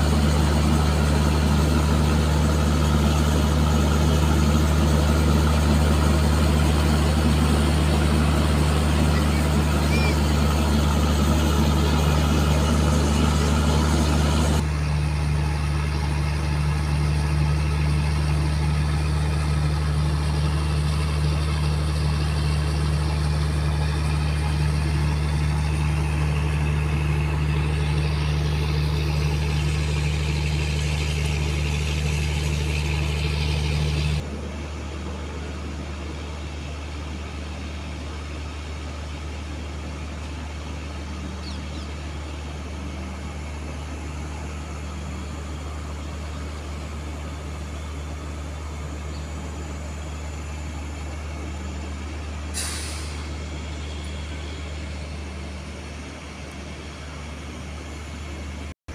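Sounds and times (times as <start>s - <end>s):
train diesel engine droning: 0.0s - 58.8s.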